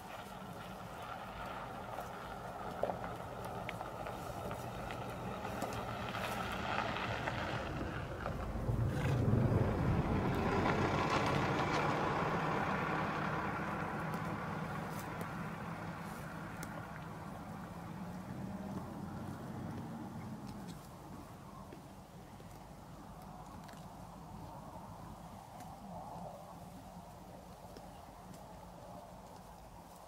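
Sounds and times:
vehicle engine humming: 0.0s - 25.9s
zebras cropping dry grass: 0.0s - 30.0s.

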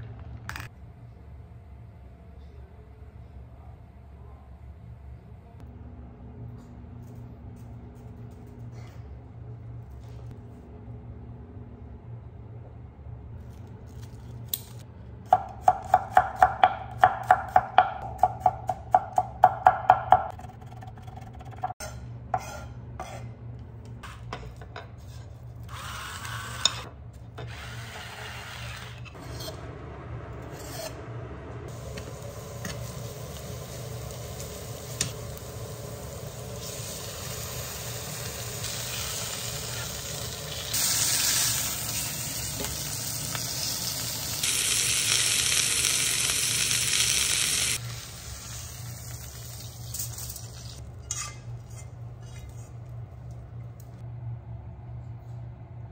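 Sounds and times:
meat sizzling in a frying pan: 33.1s - 50.2s.

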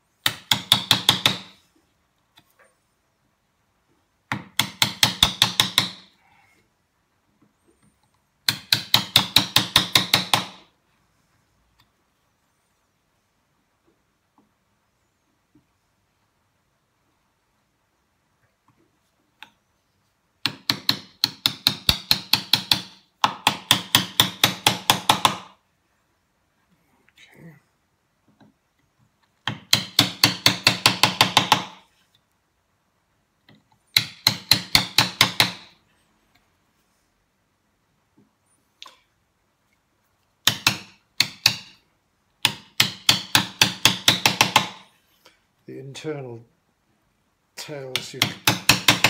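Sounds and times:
hammer striking chisel: 0.2s - 1.6s, 4.3s - 6.1s, 8.4s - 10.7s, 20.4s - 25.6s, 29.4s - 31.8s, 33.9s - 35.7s, 40.4s - 41.8s, 42.4s - 44.9s, 47.9s - 49.0s
mallet striking a chisel: 40.4s - 41.8s, 42.4s - 44.8s, 47.9s - 49.0s.

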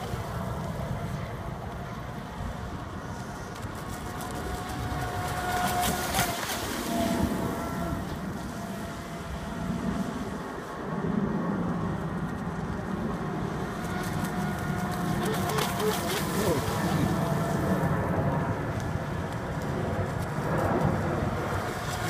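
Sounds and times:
model boat motor whine: 0.0s - 22.0s
wind rumble on microphone: 0.0s - 22.0s.

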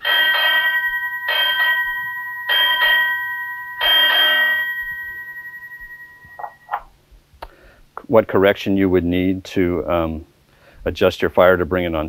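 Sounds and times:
bell-like chime ringing: 0.0s - 6.8s.

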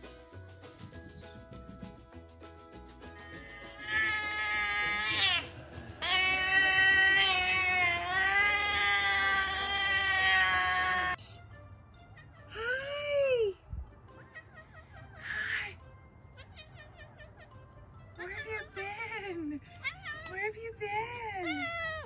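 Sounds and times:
faint background music: 0.0s - 22.0s
cat meowing: 3.2s - 5.4s, 6.0s - 11.2s, 16.4s - 17.6s, 19.8s - 20.4s, 21.4s - 22.0s
cat yowling: 3.3s - 5.4s, 6.0s - 11.2s, 16.4s - 17.6s, 19.8s - 20.4s, 21.4s - 22.0s.

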